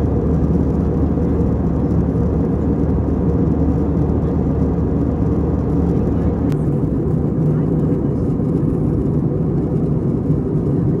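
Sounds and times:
moving vehicle low rumble: 0.0 - 11.0.

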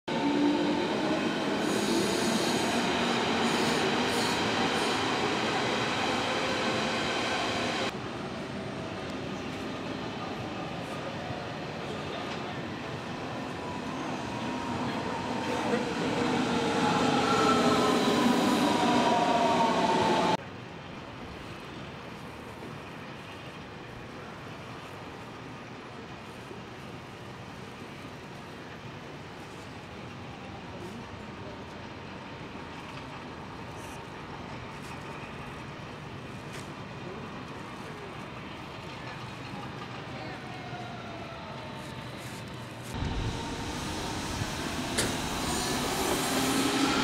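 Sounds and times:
electric train running: 43.0 - 47.0.

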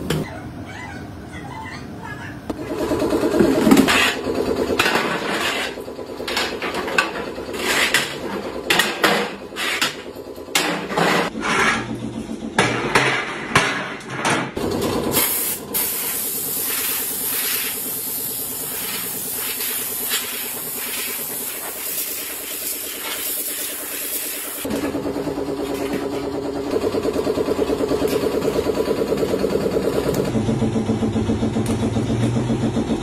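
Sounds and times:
spray gun hissing: 15.2 - 24.7.

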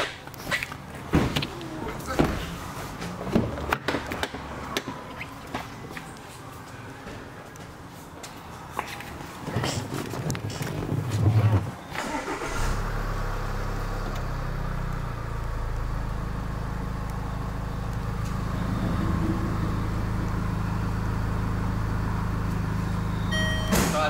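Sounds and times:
car engine starting and idling: 11.9 - 24.0.

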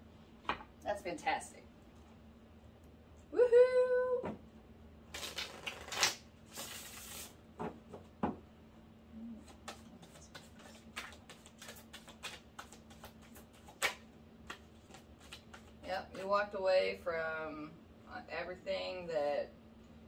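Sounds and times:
faint steady hum: 0.0 - 20.0
cards shuffling: 5.2 - 7.3, 9.4 - 15.8
cards clicking and tapping: 9.5 - 15.7.

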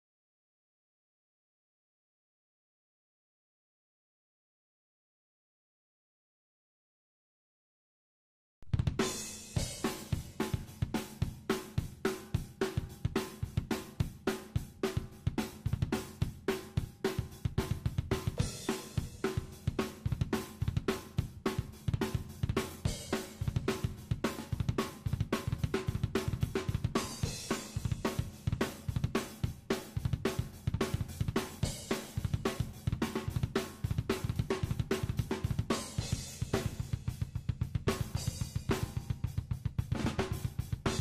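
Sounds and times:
drum kit playing: 8.6 - 41.0.

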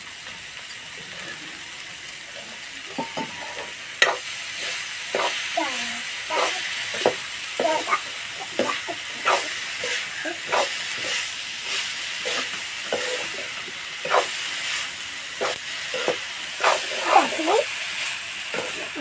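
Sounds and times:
sizzle of frying: 0.0 - 19.0
metal spatula scraping a pan: 2.9 - 5.5, 6.3 - 17.7.

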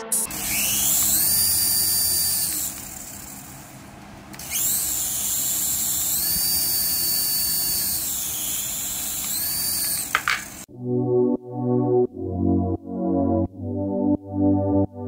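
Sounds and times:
toy helicopter motors whining: 0.1 - 3.7, 4.4 - 10.7.

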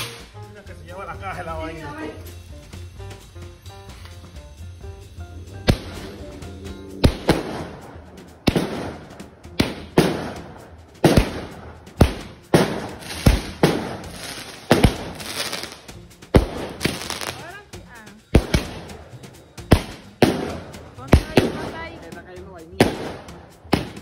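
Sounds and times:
faint music: 0.0 - 24.0
firecracker bangs: 5.6 - 6.2, 7.0 - 17.5, 18.3 - 22.0, 22.8 - 24.0.

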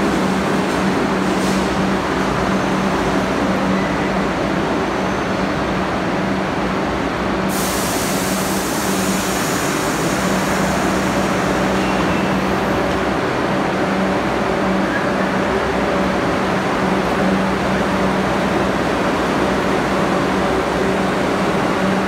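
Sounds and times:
train wheels rumbling on rail: 0.0 - 22.0
hiss: 7.5 - 12.0.

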